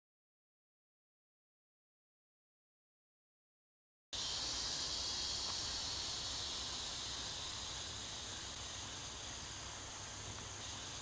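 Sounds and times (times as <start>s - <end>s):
night insects chirring: 4.2s - 11.0s.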